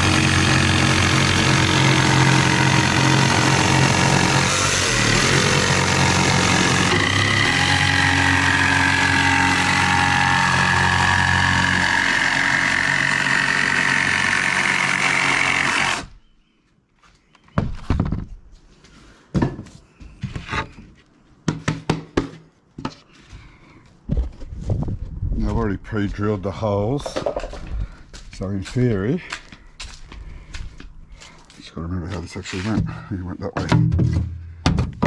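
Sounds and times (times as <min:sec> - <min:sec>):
jigsaw cutting plywood: 0:00.0 - 0:16.1
boards knocking and thudding: 0:17.5 - 0:18.4, 0:19.3 - 0:23.0, 0:27.0 - 0:27.8, 0:32.6 - 0:35.0.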